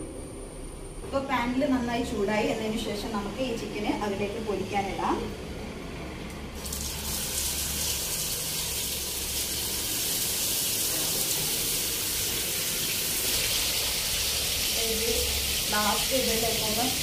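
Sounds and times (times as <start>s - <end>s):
chicken sizzling in oil: 6.6s - 17.0s.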